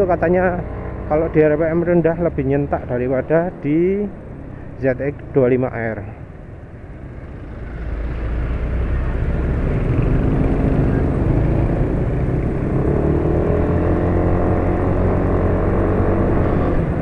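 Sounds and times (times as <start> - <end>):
motorcycle engine: 6.4 - 17.0.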